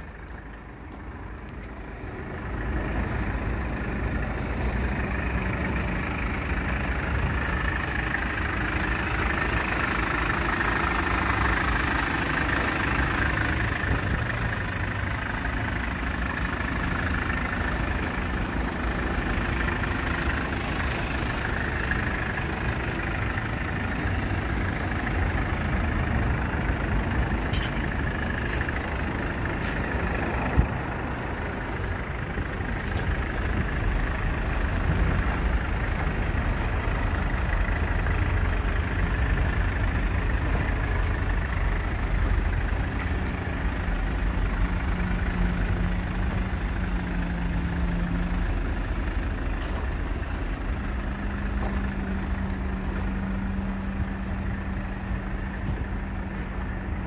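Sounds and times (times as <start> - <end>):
vehicle engine rumble: 0.0 - 57.0.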